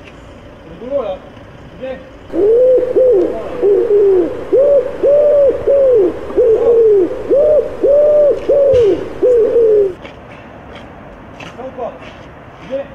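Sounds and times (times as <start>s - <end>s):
pigeon-like cooing: 2.3s - 10.0s.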